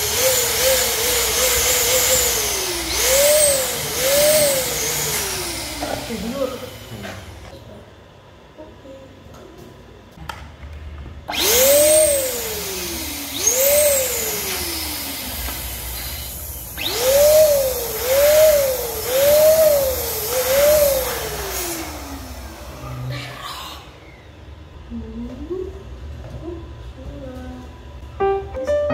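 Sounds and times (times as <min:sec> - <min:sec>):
electric balloon pump whining: 0:00.0 - 0:07.5, 0:11.3 - 0:24.7.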